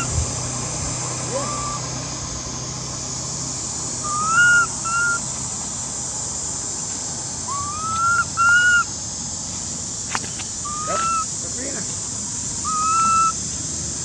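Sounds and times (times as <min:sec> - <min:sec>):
infant monkey crying: 0:01.2 - 0:02.0, 0:04.0 - 0:05.2, 0:07.5 - 0:08.9, 0:10.6 - 0:11.4, 0:12.6 - 0:13.4.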